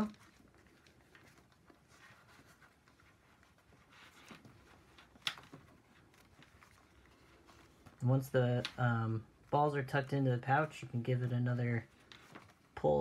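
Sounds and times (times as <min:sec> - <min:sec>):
faint handling noise: 0:00.0 - 0:13.0.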